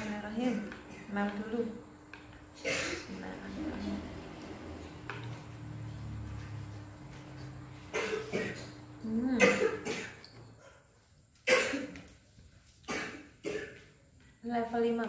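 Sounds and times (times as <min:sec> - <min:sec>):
woman coughing: 0:02.6 - 0:03.2, 0:07.9 - 0:10.2, 0:11.4 - 0:12.0, 0:12.9 - 0:13.8.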